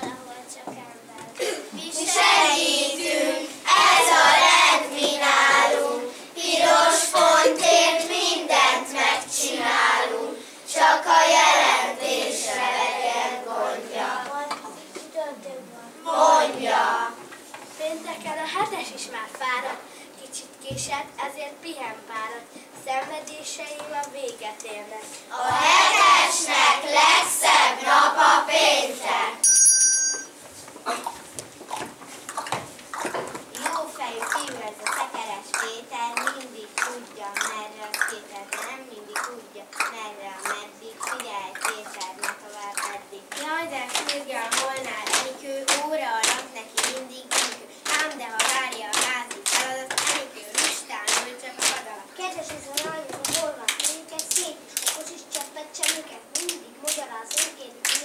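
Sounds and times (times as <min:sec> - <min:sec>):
children singing together: 0:01.4 - 0:14.6, 0:16.0 - 0:17.2, 0:25.3 - 0:29.4
children chanting rhythmically: 0:01.7 - 0:14.5, 0:16.0 - 0:17.2, 0:25.3 - 0:29.4, 0:33.6 - 0:58.0
high electronic ring: 0:29.4 - 0:30.4.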